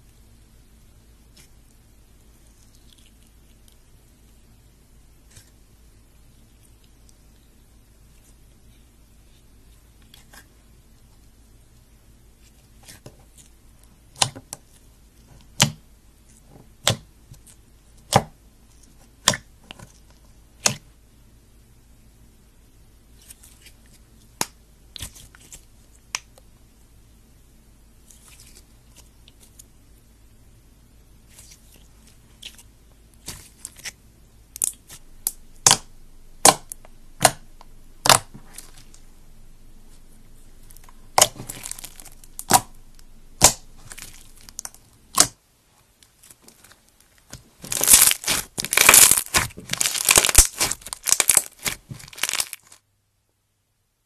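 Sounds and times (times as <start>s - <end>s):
slime crackling: 31.3s - 39.1s, 39.9s - 45.4s, 46.1s - 52.8s
slime popping: 34.6s - 39.0s, 40.6s - 45.4s, 47.3s - 52.8s
slime popping when poked: 38.0s - 38.8s, 41.1s - 42.7s, 43.4s - 45.4s.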